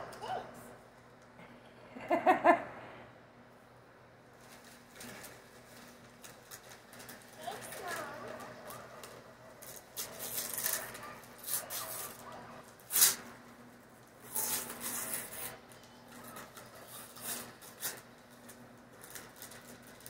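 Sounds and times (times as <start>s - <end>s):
wrapping paper tearing and crinkling: 4.4s - 13.3s, 14.2s - 20.0s.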